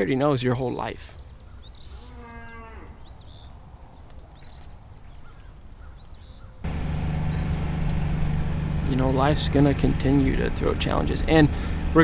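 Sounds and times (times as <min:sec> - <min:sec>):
birds chirping: 0:00.0 - 0:12.0
cow bawling: 0:02.0 - 0:03.0
loud low hum: 0:06.6 - 0:12.0
low steady rumble: 0:06.6 - 0:12.0.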